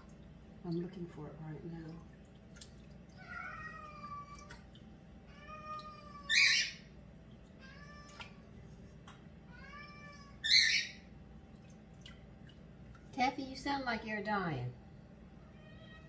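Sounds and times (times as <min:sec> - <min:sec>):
cat meowing: 0:03.2 - 0:04.6, 0:05.3 - 0:06.7, 0:09.5 - 0:10.7, 0:15.5 - 0:16.0.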